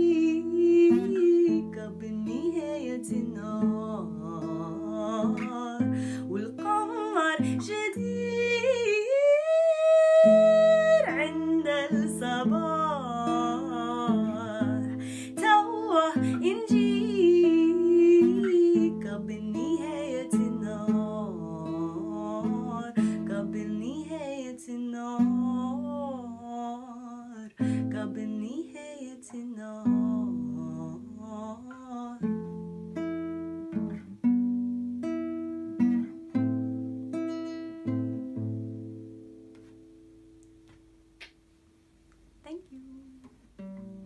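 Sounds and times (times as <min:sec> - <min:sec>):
woman singing: 0:00.0 - 0:32.4, 0:42.4 - 0:43.4
plucked classical guitar: 0:00.0 - 0:41.4, 0:42.5 - 0:44.0.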